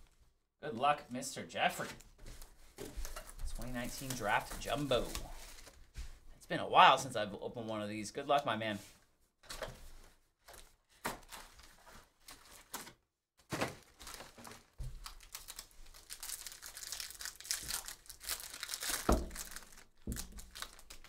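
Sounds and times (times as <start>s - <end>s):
card packs handled and set down: 1.8s - 6.2s, 9.4s - 21.0s
foil pack crinkling and tearing: 3.6s - 5.8s, 11.1s - 21.0s.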